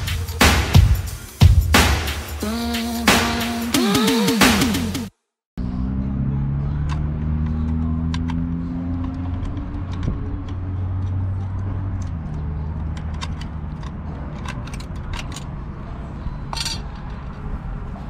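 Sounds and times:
hand tools clinking on metal: 16.5 - 17.2.

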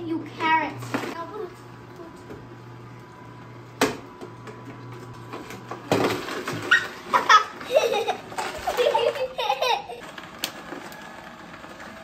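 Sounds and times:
juicer humming: 0.0 - 12.0
children laughing and giggling: 6.8 - 10.1.

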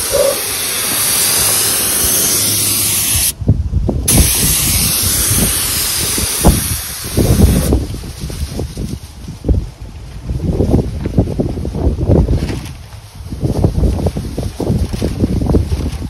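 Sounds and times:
spray gun hissing: 0.0 - 3.4, 4.1 - 9.0
wind rumbling on microphone: 0.0 - 16.0.

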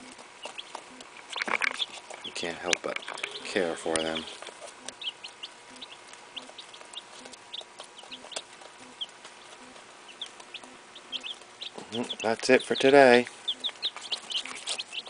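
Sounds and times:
chicks peeping: 0.0 - 15.0.

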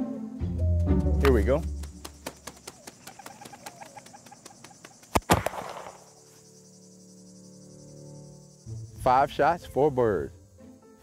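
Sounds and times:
shotgun double crack: 5.2 - 6.0.

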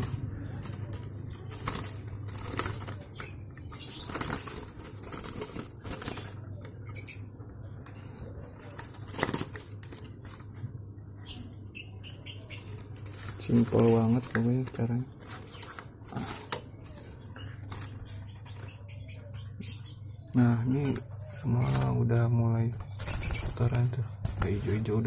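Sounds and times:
bird flapping in cage: 0.0 - 7.0, 8.6 - 10.6, 12.6 - 17.0, 22.7 - 25.0.

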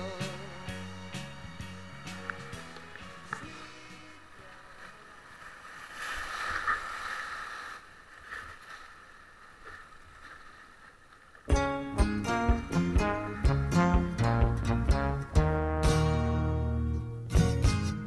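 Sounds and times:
guitar music: 0.0 - 4.9, 11.5 - 18.0
whitewater rushing: 2.6 - 11.6
paddle splashes: 2.6 - 11.8.

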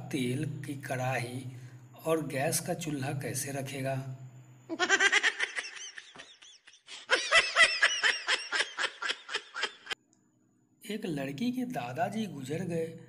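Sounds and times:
high-pitched giggling: 4.7 - 10.0.

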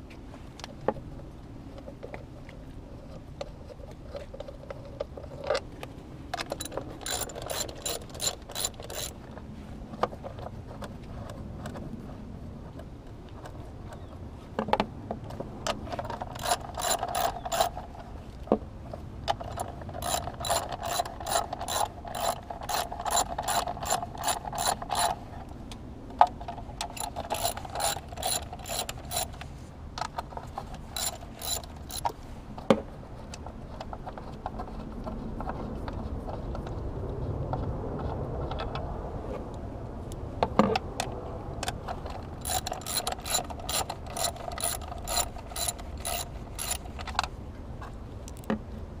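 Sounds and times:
ratchet clicking: 6.4 - 9.2, 16.1 - 17.8, 19.5 - 25.2, 26.8 - 29.4, 30.9 - 32.1, 42.2 - 47.2.

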